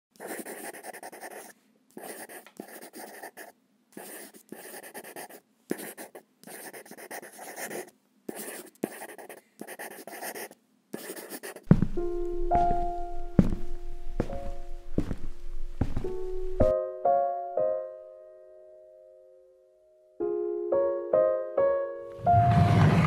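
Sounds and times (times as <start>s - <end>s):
markers scratching on paper: 0.2s - 11.7s.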